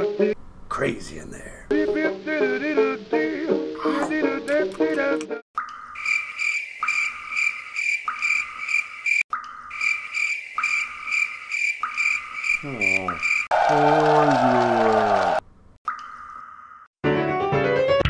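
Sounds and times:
high pulsing chirp: 0:05.6 - 0:13.5.

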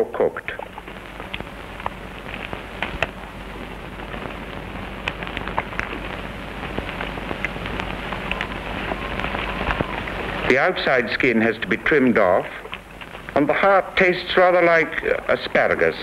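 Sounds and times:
film soundtrack hiss: 0:00.0 - 0:16.0
clicks and crackles: 0:00.5 - 0:10.5, 0:12.5 - 0:13.5.

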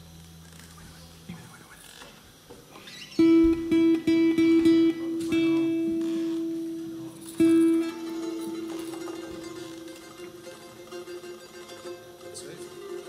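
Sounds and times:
guitar plucking: 0:03.2 - 0:13.0.

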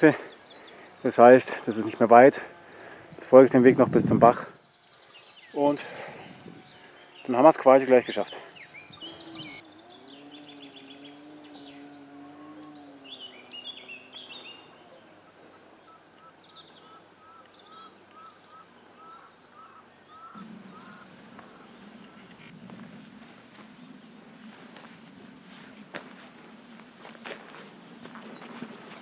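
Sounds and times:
birds chirping: 0:00.0 - 0:29.0
high-pitched whine: 0:05.5 - 0:29.0
footsteps on forest path: 0:22.6 - 0:29.0.

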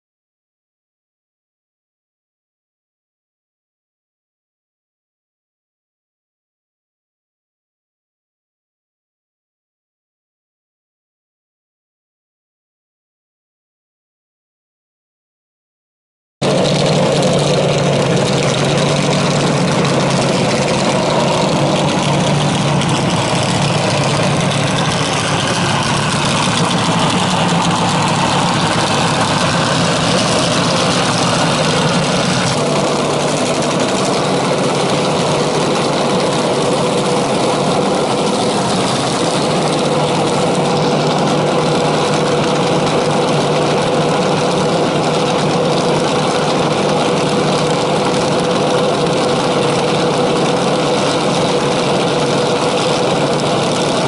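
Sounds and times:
dragster engine idling loudly: 0:16.4 - 0:54.0.

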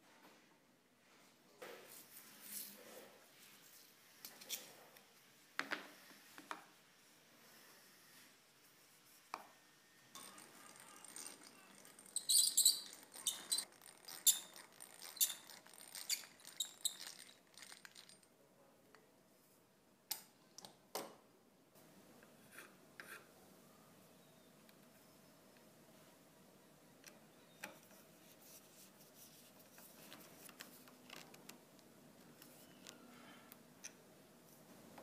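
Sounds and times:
hand drill squeaking and ticking: 0:10.2 - 0:18.2.

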